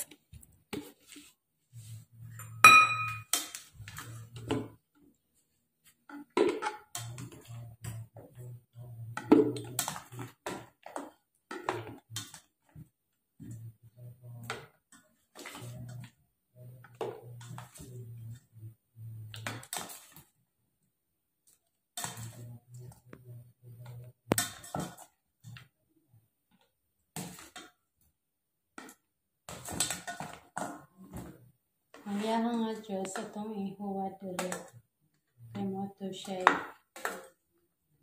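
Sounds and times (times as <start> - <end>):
spoon clinking and scraping: 2.4 - 3.3
steel bowl ringing: 2.6 - 3.3.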